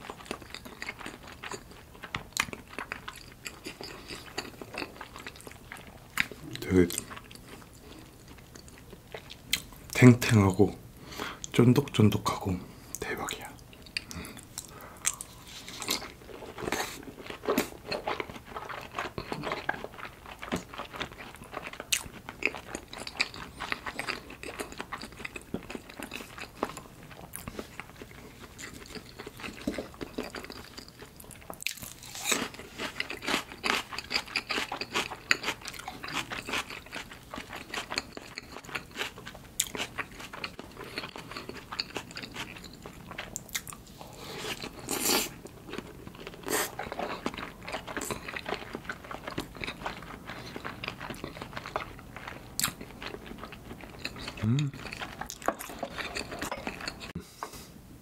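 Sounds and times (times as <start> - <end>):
wet chewing and lip smacks: 13.8 - 43.8, 44.5 - 57.2.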